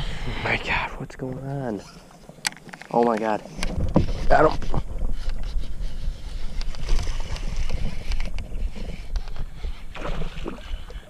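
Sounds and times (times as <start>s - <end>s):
microphone handling noise: 2.7s - 10.9s
wind rumble: 3.2s - 11.0s.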